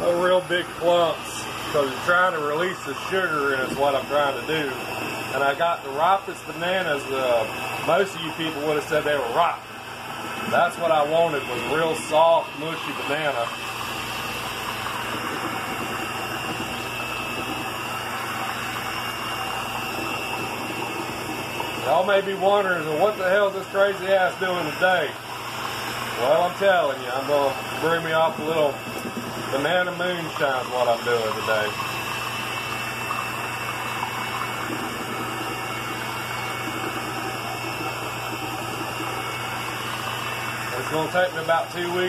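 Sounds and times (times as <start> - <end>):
electric hand mixer running: 0.0 - 42.0.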